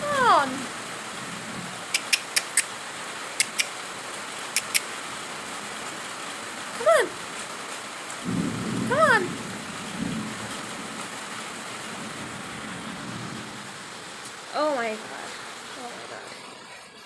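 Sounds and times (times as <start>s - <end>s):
heavy rain falling: 0.0s - 17.0s
sharp clicks: 1.9s - 2.7s, 3.4s - 3.7s, 4.6s - 4.9s.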